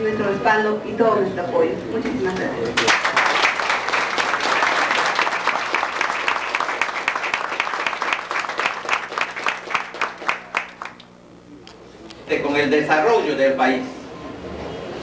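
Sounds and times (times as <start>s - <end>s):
audience applauding: 2.8s - 11.1s.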